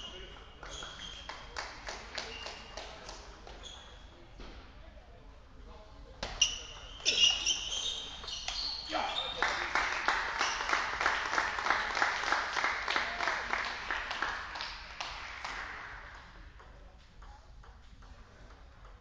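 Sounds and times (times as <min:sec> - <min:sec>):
spectators clapping: 0:00.2 - 0:03.2, 0:09.2 - 0:16.4.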